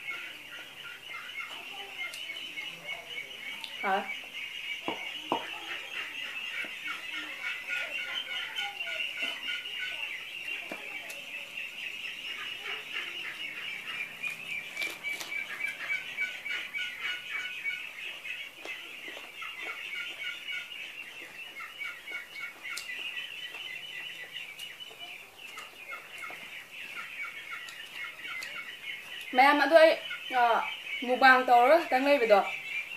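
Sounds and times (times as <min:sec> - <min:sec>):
ducks quacking: 0:00.0 - 0:32.9.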